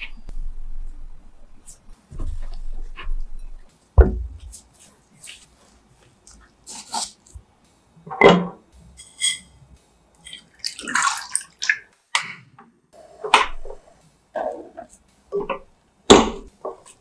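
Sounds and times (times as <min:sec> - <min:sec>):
milk splashing: 0:10.2 - 0:11.9.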